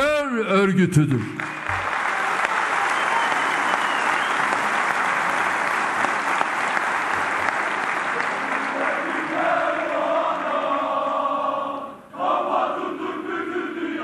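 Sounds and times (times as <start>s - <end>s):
crowd applauding: 1.1s - 10.6s.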